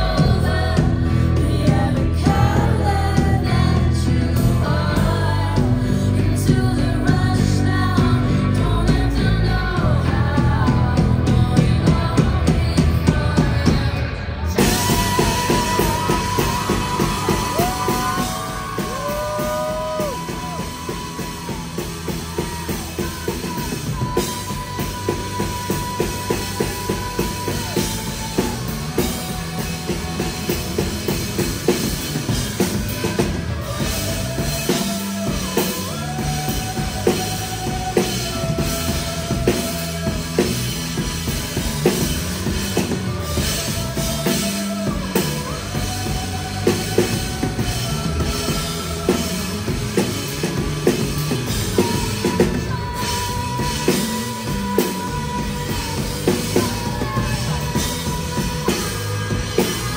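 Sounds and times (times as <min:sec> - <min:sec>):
drum kit beat: 0:00.0 - 0:14.0, 0:14.6 - 0:59.9
rock band playing: 0:00.0 - 0:59.9.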